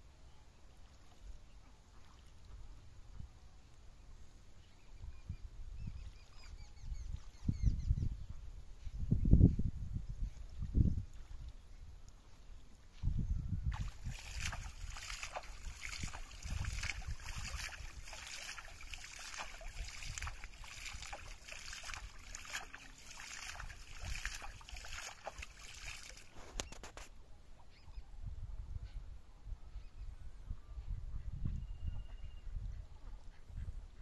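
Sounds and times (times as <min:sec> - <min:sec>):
water splashing and dripping: 0:13.7 - 0:27.1.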